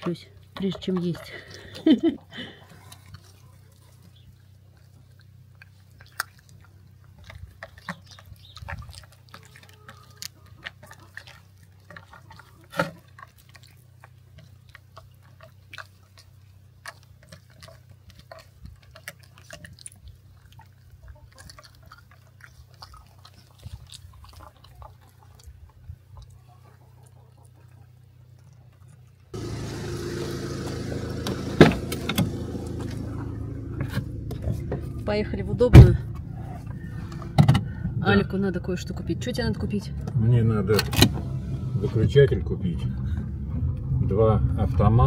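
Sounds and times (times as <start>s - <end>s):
animal gnawing and chewing: 0.0s - 29.6s, 30.6s - 37.8s
low steady hum: 29.0s - 45.0s.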